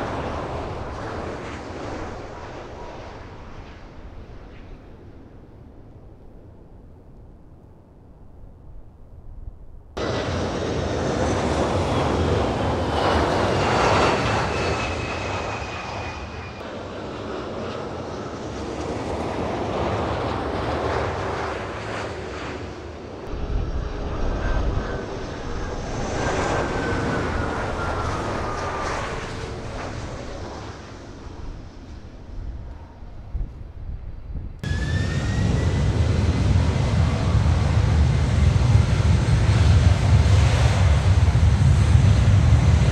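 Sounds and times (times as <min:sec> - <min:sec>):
jet airliner passing: 0:00.0 - 0:42.9
deep rumble: 0:32.3 - 0:42.9.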